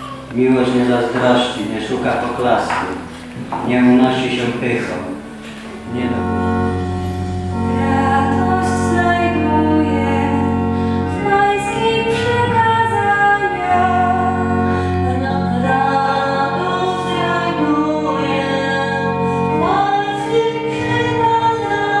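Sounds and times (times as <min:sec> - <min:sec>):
low accompaniment notes: 0:00.0 - 0:22.0
woman singing into a microphone: 0:07.2 - 0:22.0.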